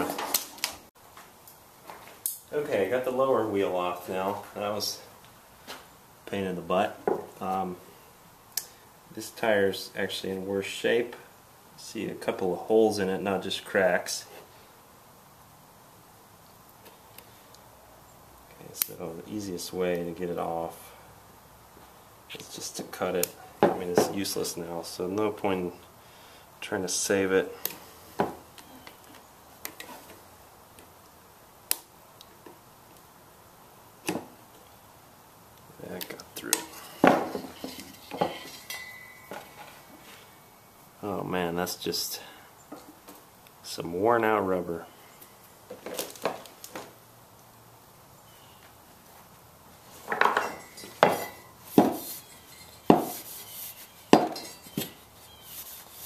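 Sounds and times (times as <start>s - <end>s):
rubbing: 51.0s - 56.0s.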